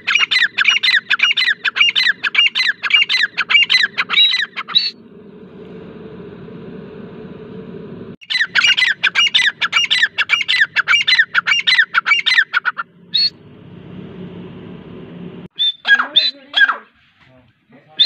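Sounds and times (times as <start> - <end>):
bird calling sharp repeated notes: 0.0 - 5.0, 8.2 - 13.4, 15.5 - 16.9.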